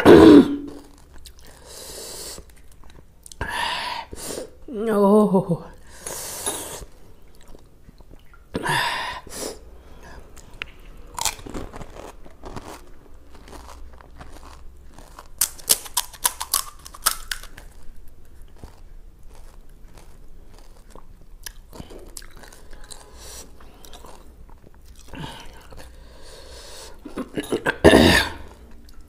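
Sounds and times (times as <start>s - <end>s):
crunching and chewing: 0.6s - 3.4s, 6.8s - 8.4s, 10.2s - 27.4s, 28.3s - 29.0s.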